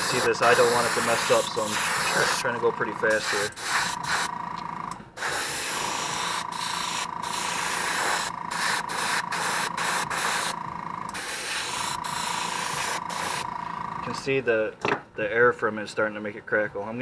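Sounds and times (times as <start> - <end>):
airbrush spraying hiss: 0.0 - 2.5, 3.1 - 4.3, 5.2 - 13.5
steady high whine: 0.0 - 14.5.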